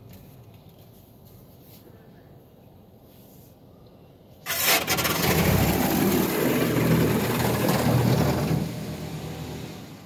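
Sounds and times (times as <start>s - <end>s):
water jets spraying on car: 4.5s - 10.0s.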